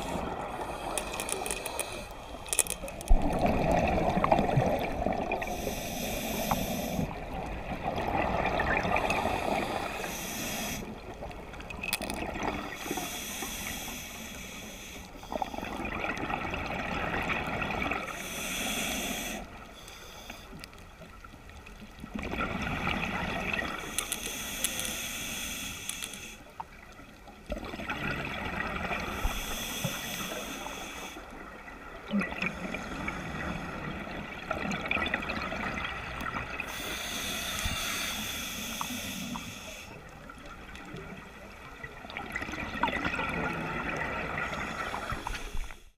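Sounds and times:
bubbles gurgling underwater: 3.1 - 5.5, 7.1 - 9.9, 15.5 - 18.1, 22.0 - 23.8, 27.5 - 29.1, 31.7 - 36.7, 40.3 - 45.4
regulator hissing inhales: 5.4 - 7.2, 9.1 - 10.9, 12.8 - 15.4, 18.2 - 20.6, 23.9 - 26.5, 29.1 - 31.3, 36.7 - 40.0.

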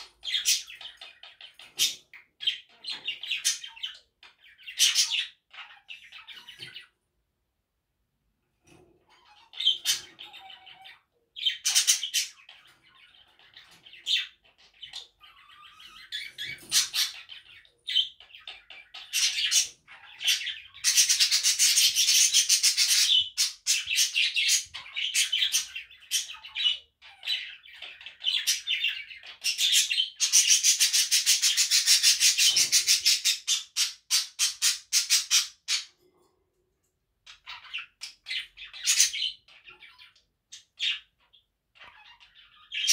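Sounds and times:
budgerigar chattering and warbling: 0.0 - 7.0, 9.0 - 36.0.

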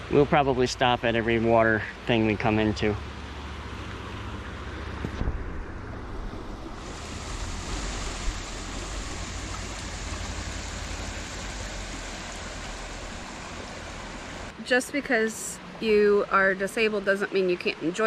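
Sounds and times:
creek water rushing: 0.0 - 18.0
wind rumble on microphone: 4.2 - 13.8.

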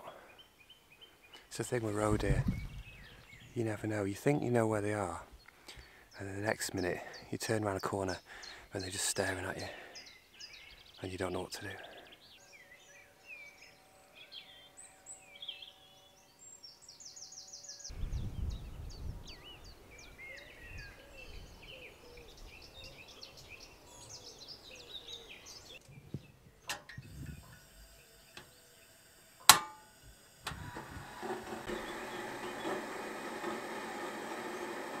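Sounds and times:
birds singing: 0.0 - 29.4, 30.7 - 35.0
gas burner hissing: 26.7 - 35.0
igniter clicks: 29.4 - 35.0.

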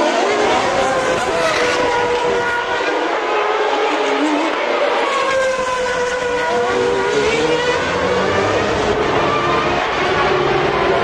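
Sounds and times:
racing car engines at high revs: 0.0 - 11.0.

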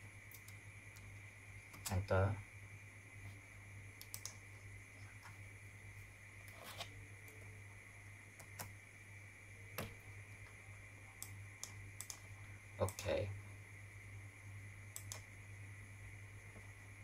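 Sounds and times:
faint high whine: 0.0 - 17.0
low electrical hum: 0.0 - 17.0
keyboard and mouse clicks: 4.0 - 4.4, 11.2 - 13.1, 14.9 - 15.3.

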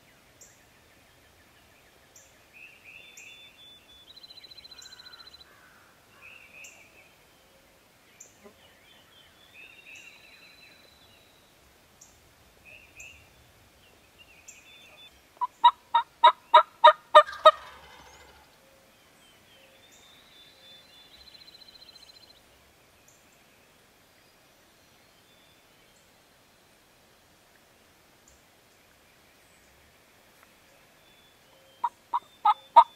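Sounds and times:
songbirds chirping: 0.0 - 32.9
turkey gobbling: 15.4 - 18.4, 31.8 - 32.9.

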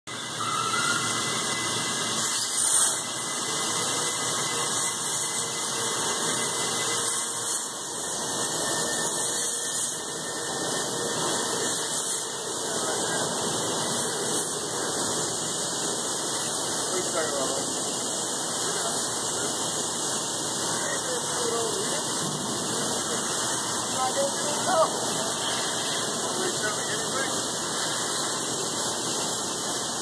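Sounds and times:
plasma torch hissing squeal: 0.1 - 29.4.

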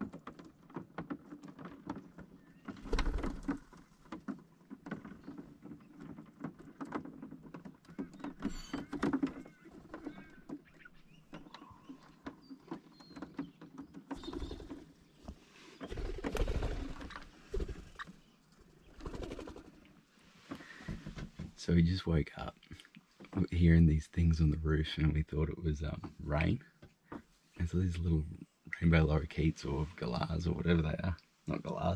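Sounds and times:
claws tapping on roof: 0.0 - 15.0
thumps and rustling: 20.3 - 21.6.

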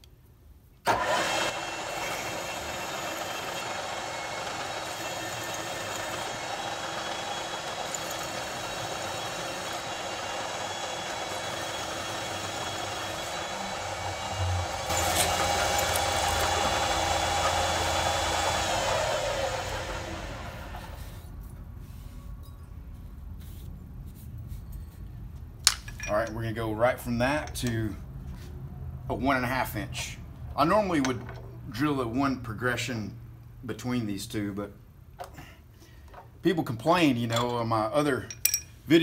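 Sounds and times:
drill press cutting steel: 0.9 - 21.1.

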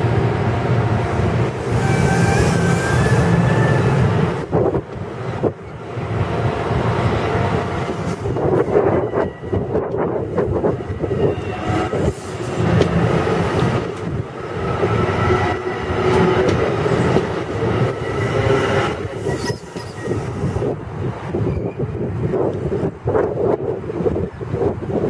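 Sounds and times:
train wheels rumbling on rails: 0.0 - 25.0
thin wheel squeal: 19.2 - 20.3.

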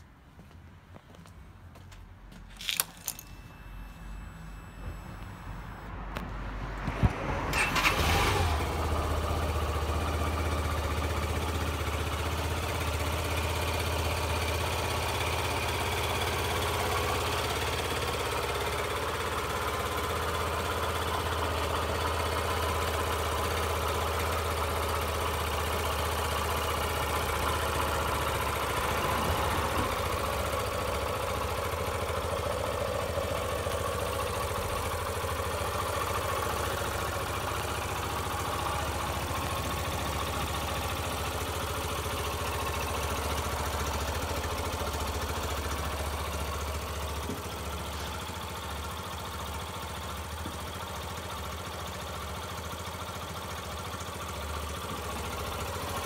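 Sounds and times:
motorcycle engine starting and idling: 2.4 - 56.0.

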